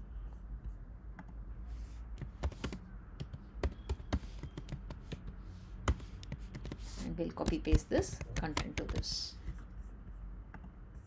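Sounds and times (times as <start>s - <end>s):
computer keyboard typing: 2.2s - 9.6s.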